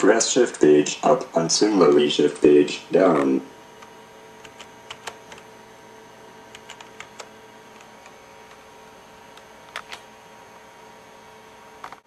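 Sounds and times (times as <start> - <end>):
faint electrical hum: 0.0 - 12.0
computer keyboard keys clicking: 4.4 - 5.4, 6.5 - 7.9.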